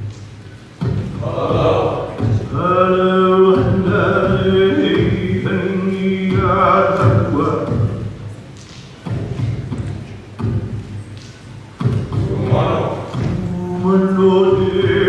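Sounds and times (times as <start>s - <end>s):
male voices chanting: 1.0s - 8.1s, 12.1s - 15.0s.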